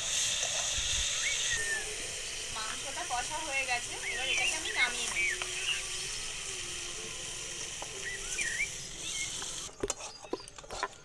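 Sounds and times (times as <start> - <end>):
steady hiss: 0.0 - 9.7
birds chirping: 0.5 - 11.0.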